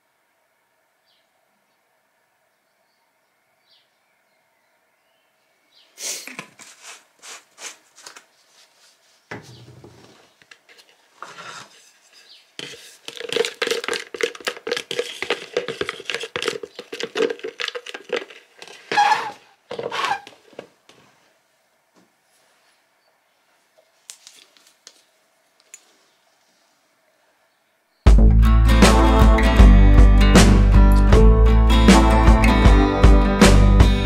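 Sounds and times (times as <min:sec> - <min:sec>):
stick scraping in plastic cup: 0:10.5 - 0:20.4.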